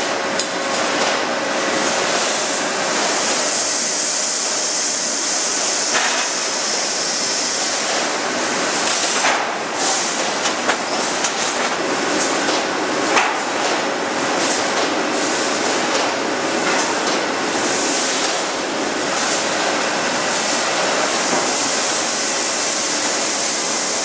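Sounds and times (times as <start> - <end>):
loud steady hissing din: 1.4 - 24.0.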